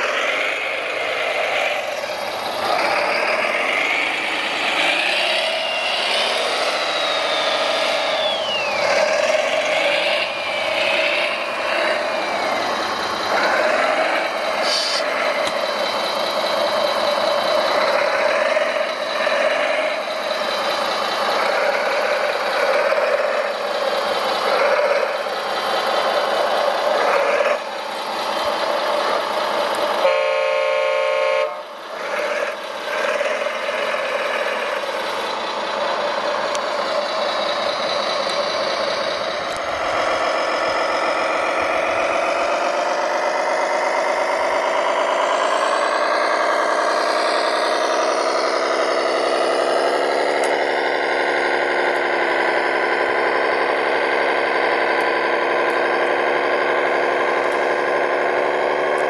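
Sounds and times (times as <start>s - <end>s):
rising and falling whines: 0.0s - 23.6s, 31.5s - 59.0s
steady motor whine: 0.0s - 59.0s
toy horn: 30.0s - 31.7s.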